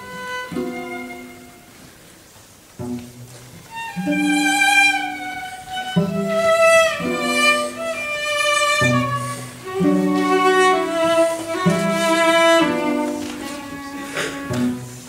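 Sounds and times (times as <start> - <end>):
cello ensemble bowed chords: 0.0 - 15.0.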